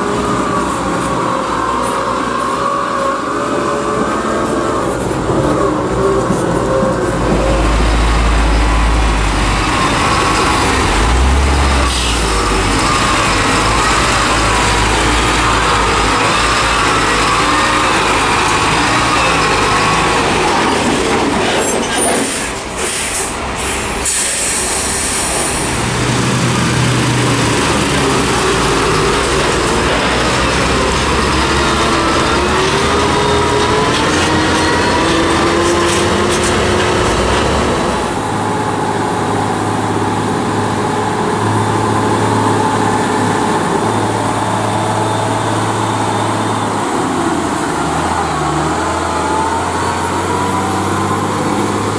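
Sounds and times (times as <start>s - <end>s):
diesel truck passing: 0.0s - 51.9s
truck diesel engine: 0.0s - 51.9s
air hiss: 22.2s - 25.8s.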